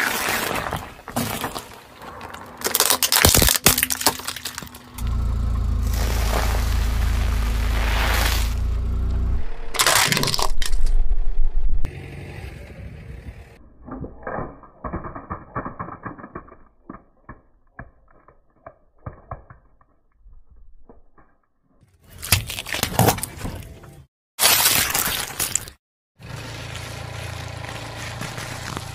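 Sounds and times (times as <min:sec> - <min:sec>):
plastic cracking and snapping: 0:02.6 - 0:04.8
tyre crushing plastic toy: 0:02.6 - 0:04.9, 0:09.7 - 0:10.9.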